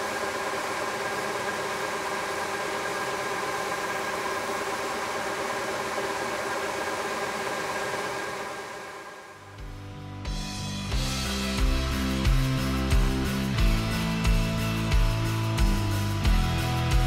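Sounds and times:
belt sander humming and whining: 0.0 - 9.5.

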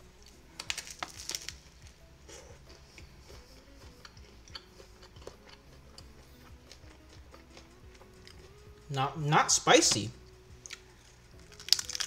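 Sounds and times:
crackly crunches of biting: 0.2 - 1.9, 10.6 - 12.0
quiet chewing: 2.2 - 8.7, 10.5 - 12.0.

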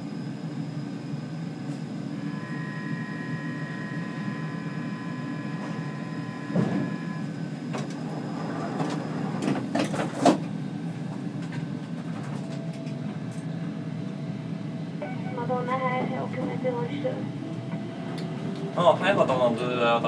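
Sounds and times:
metro train rumble: 0.0 - 20.0
thin high whine: 2.2 - 9.2.

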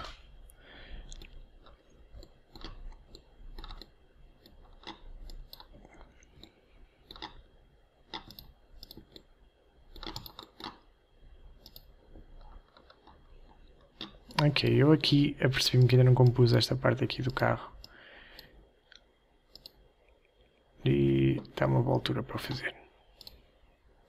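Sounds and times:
computer mouse and keyboard clicks: 1.1 - 7.5, 8.1 - 9.3, 9.9 - 10.9, 11.6 - 14.6, 17.3 - 19.8, 23.2 - 23.4.

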